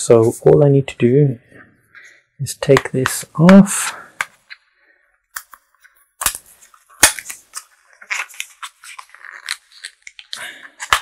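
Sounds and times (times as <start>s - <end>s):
plastic crinkling: 5.4s - 11.0s.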